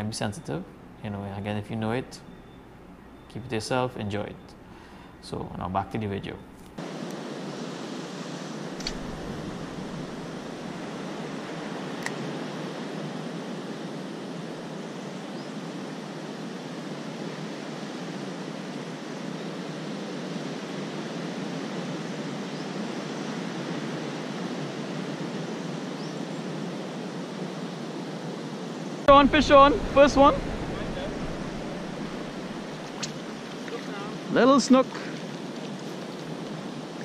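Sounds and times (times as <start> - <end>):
ocean surf rushing: 6.8 - 15.1, 26.9 - 37.0
short clicks: 8.8 - 9.0.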